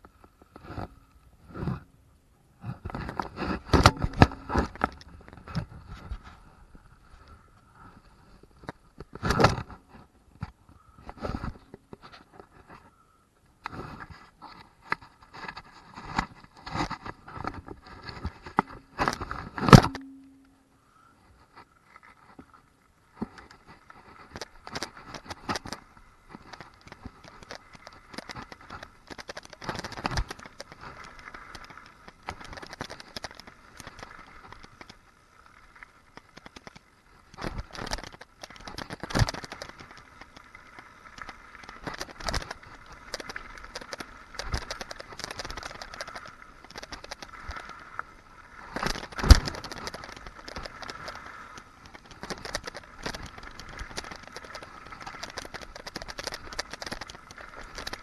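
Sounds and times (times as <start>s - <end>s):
mountain bike rattling over dirt: 23.3s - 58.0s.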